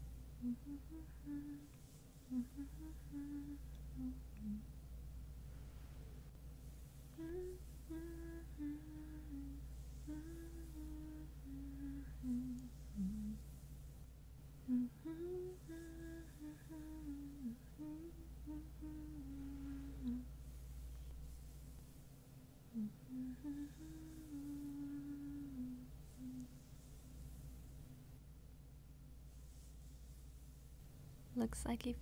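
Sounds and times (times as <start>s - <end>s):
woman humming a slow tune: 0.0s - 4.8s, 7.1s - 13.7s, 14.6s - 20.4s, 22.7s - 27.0s.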